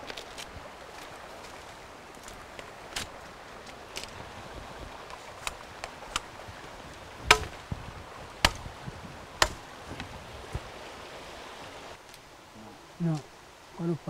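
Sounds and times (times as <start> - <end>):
machete chopping woody stems: 7.2 - 7.7, 8.4 - 8.8, 9.4 - 10.1.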